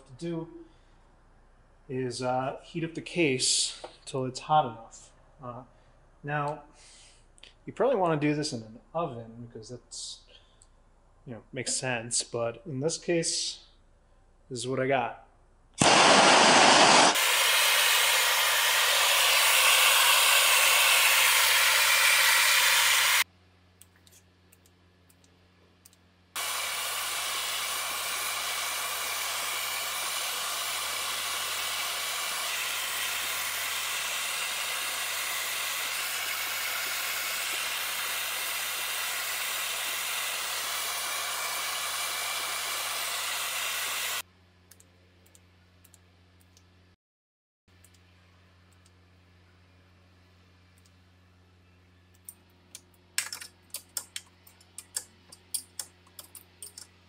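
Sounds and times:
gas torch flame roaring hiss: 15.8 - 23.3, 26.4 - 44.2.

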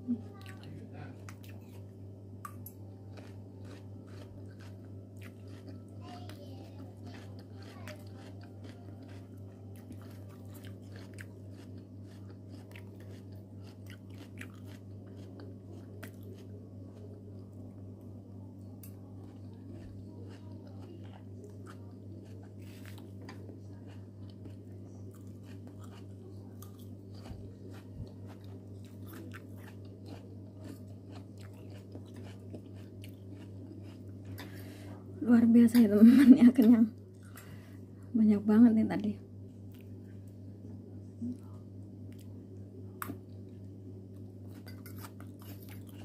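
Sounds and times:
steady low hum: 0.0 - 46.0
person chewing crunchy food: 2.4 - 17.7, 19.2 - 34.6, 42.1 - 46.0.

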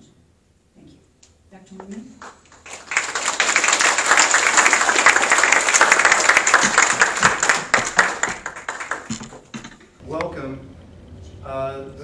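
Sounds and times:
audience applauding: 2.2 - 9.5.

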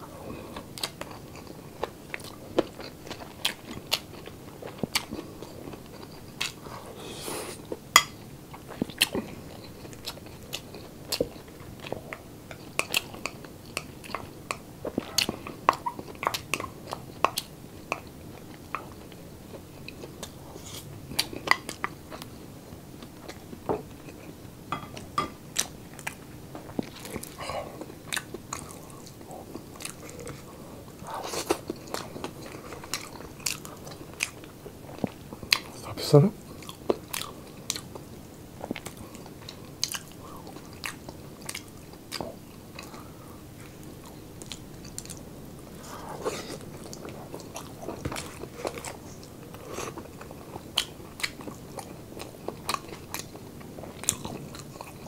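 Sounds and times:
crunchy chewing: 36.5 - 55.0.

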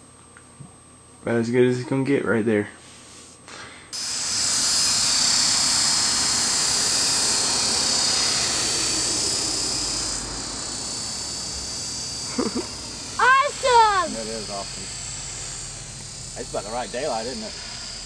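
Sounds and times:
rotor hiss: 2.8 - 18.0
rc helicopter motor whine: 3.9 - 18.0.

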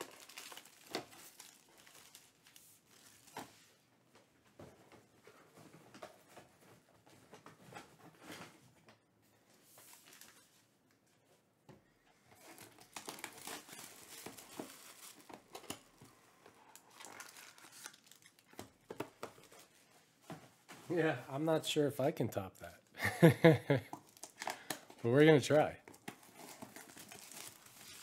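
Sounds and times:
plastic shrink-wrap crinkling and tearing: 0.0 - 3.4, 9.8 - 10.5, 12.4 - 19.8, 24.0 - 28.0.

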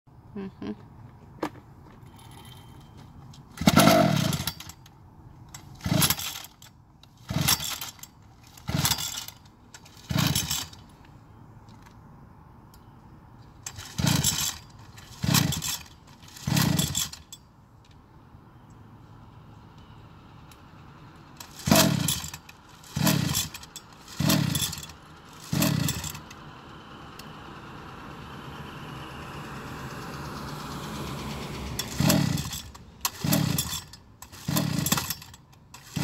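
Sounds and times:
recoil starter cranking engine: 3.3 - 4.9, 5.5 - 11.0, 13.6 - 17.4, 21.3 - 27.9, 29.8 - 36.0.

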